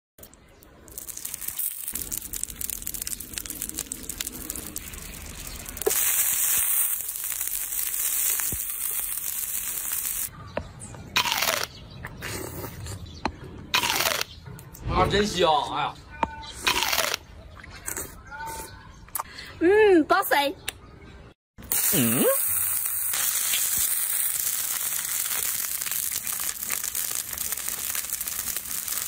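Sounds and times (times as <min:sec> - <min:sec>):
tomato sizzling on hot stone: 0:00.3 - 0:10.3, 0:21.6 - 0:29.0.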